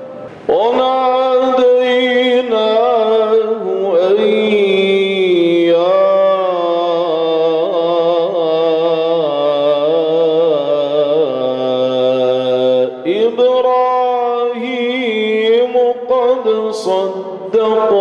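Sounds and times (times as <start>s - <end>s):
man chanting recitation: 0.0s - 18.0s.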